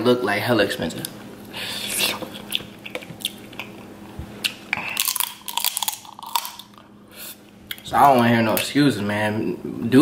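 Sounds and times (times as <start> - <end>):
crab legs crackling when chewed: 2.0 - 6.9.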